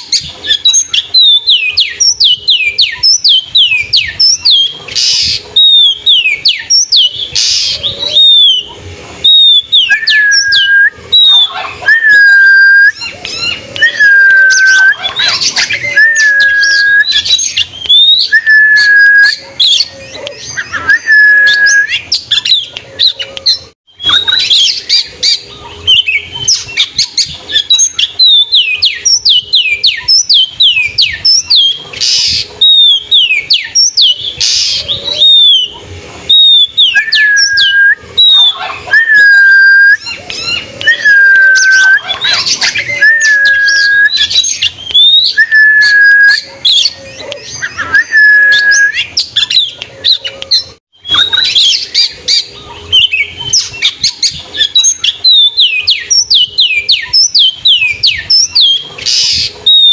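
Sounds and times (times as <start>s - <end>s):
bird singing whistles: 0.0s - 59.9s.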